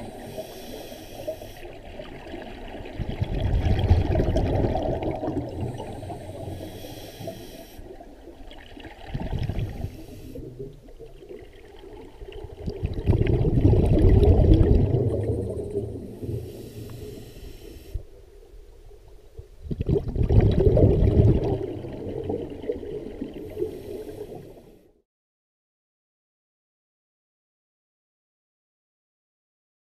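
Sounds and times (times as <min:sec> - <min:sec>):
regulator inhale hiss: 0:00.0 - 0:01.9, 0:05.7 - 0:08.0, 0:09.5 - 0:10.7, 0:16.2 - 0:18.2, 0:23.4 - 0:25.0
exhaled bubbles rushing: 0:01.8 - 0:06.2, 0:08.4 - 0:16.5, 0:19.6 - 0:23.6.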